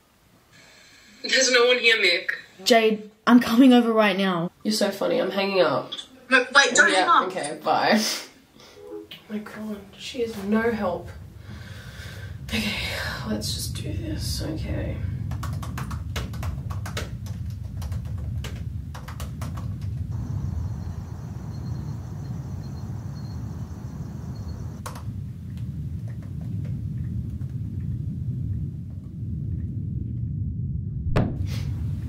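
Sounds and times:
steady low rumble: 0:09.2 - 0:32.0
laptop keyboard typing: 0:15.3 - 0:20.0
faint high chirring: 0:20.1 - 0:24.8.

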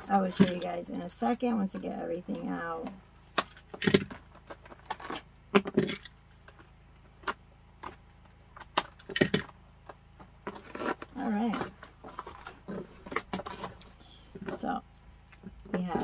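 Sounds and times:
knife cutting cardboard box: 0:10.5 - 0:13.8.

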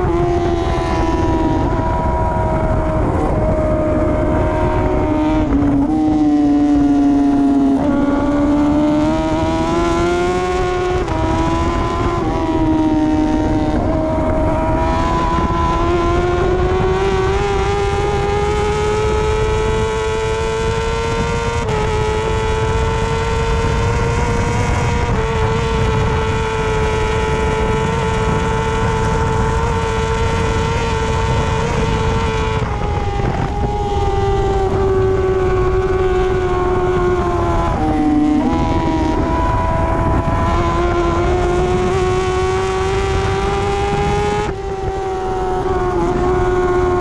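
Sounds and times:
motorcycle engine revving high: 0:00.0 - 0:47.0
wind rushing: 0:00.0 - 0:47.0.

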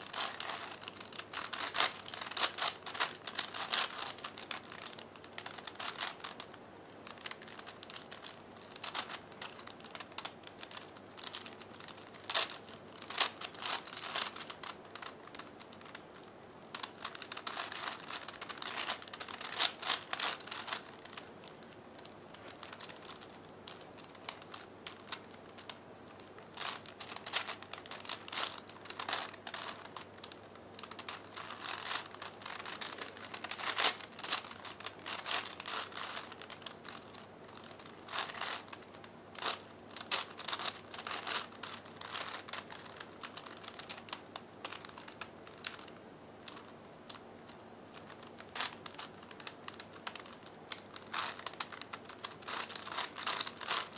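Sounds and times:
puzzle cube clicking: 0:00.1 - 0:16.0, 0:16.7 - 0:38.8, 0:48.0 - 0:53.9.

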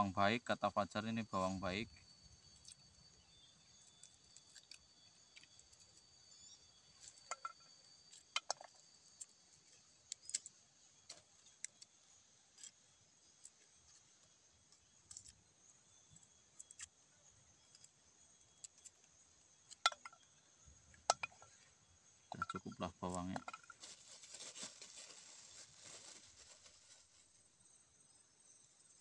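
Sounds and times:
high insect drone: 0:00.0 - 0:29.0.

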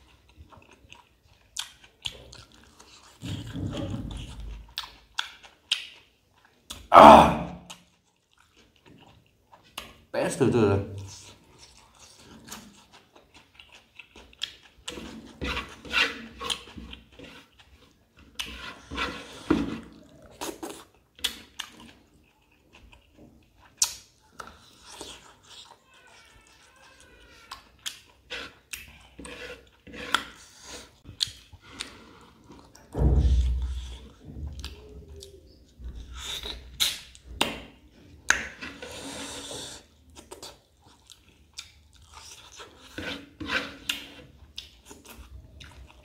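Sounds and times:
wet chewing: 0:00.0 - 0:06.9, 0:07.6 - 0:10.1, 0:11.0 - 0:37.6, 0:38.2 - 0:46.0
sucking noises: 0:38.7 - 0:39.9.

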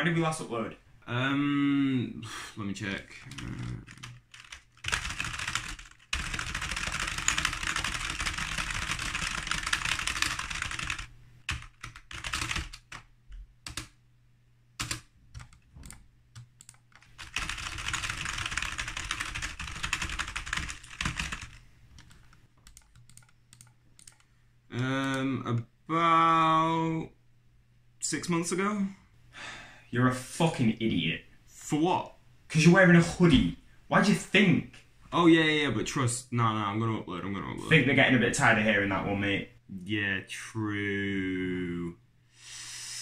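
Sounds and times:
typing on computer keyboard: 0:03.3 - 0:13.1, 0:13.7 - 0:14.0, 0:14.8 - 0:24.2.

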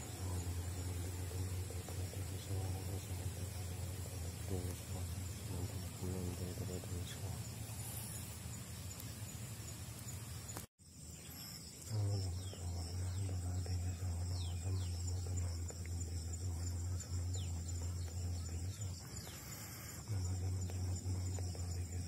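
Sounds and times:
loud low hum: 0:00.0 - 0:09.4, 0:11.8 - 0:19.2
insects chirring: 0:00.0 - 0:22.0.

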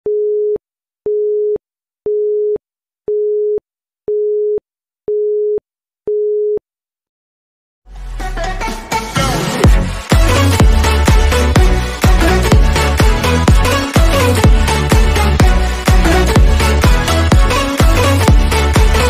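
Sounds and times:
music: 0:07.9 - 0:19.0.

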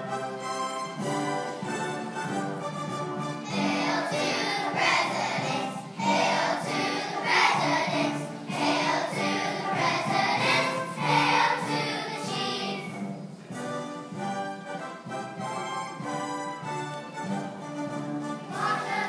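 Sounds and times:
instrumental accompaniment: 0:00.0 - 0:19.0
children's choir singing: 0:03.4 - 0:13.6, 0:18.4 - 0:19.0.

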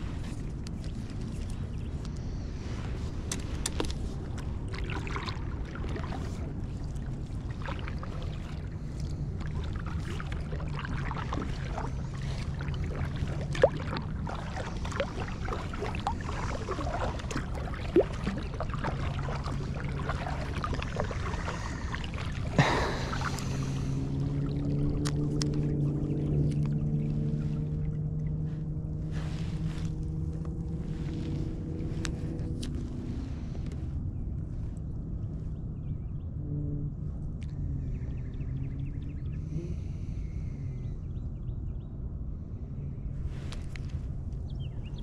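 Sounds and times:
paddle strokes in water: 0:00.0 - 0:33.9, 0:43.2 - 0:45.0
water drips and splashes: 0:02.9 - 0:28.5.

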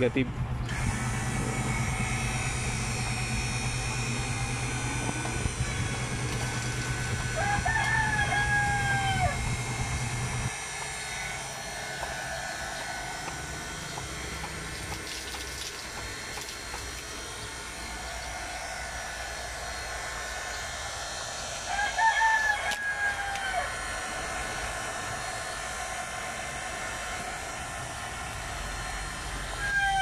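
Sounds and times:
water pump running: 0:00.0 - 0:30.0
rooster crowing: 0:06.5 - 0:09.9, 0:11.6 - 0:14.3, 0:21.6 - 0:24.0, 0:29.4 - 0:30.0
water pouring onto concrete: 0:14.6 - 0:17.2.

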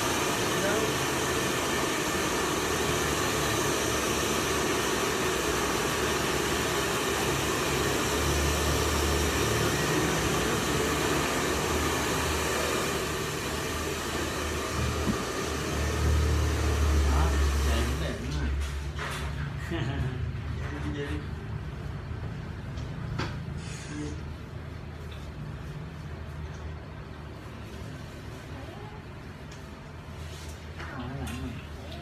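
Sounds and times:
hair dryers blowing: 0:00.0 - 0:18.7.

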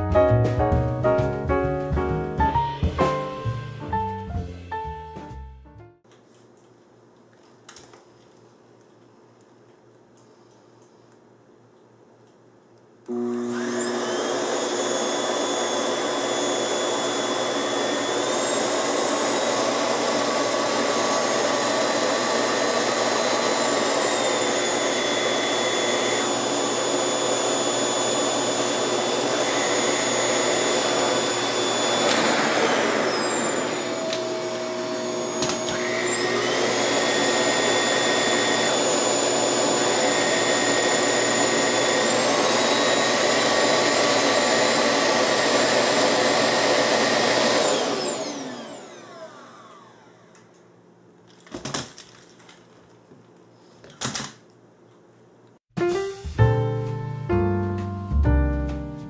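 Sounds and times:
vacuum cleaner motor whining: 0:13.1 - 0:50.5.

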